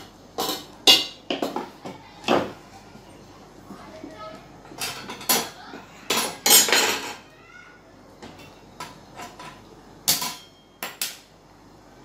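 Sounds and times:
steel utensils clattering: 4.7 - 7.2.

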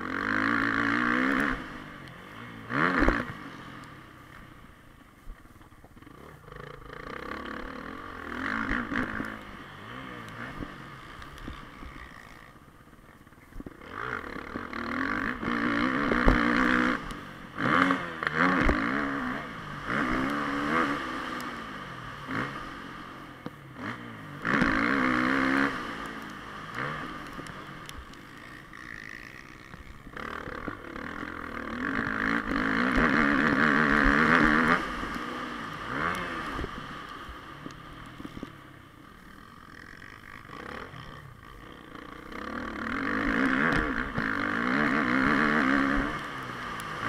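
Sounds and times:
dirt bike engine revving: 0.0 - 4.4, 6.0 - 13.0, 13.7 - 47.0.

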